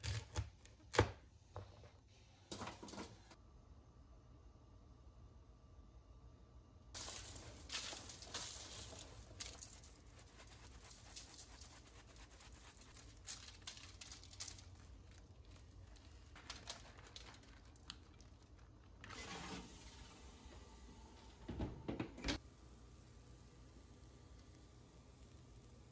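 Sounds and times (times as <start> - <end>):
foil crinkling and rustling: 7.0 - 19.0.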